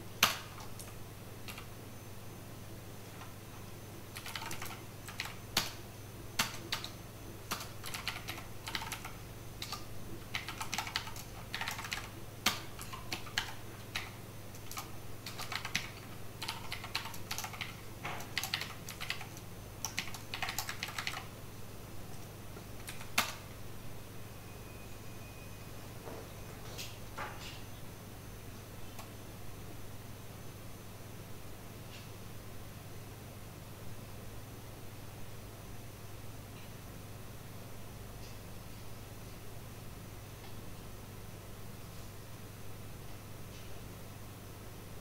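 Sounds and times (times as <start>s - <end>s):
typing on computer keyboard: 0.2s - 1.7s, 4.1s - 5.8s, 6.4s - 21.3s, 22.1s - 23.4s.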